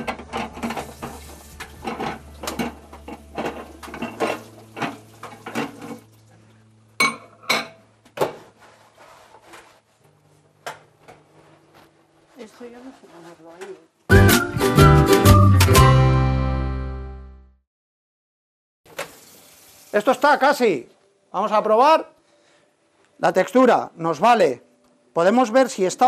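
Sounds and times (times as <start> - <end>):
dishes and utensils clattering: 0.0 - 6.2, 7.0 - 8.5.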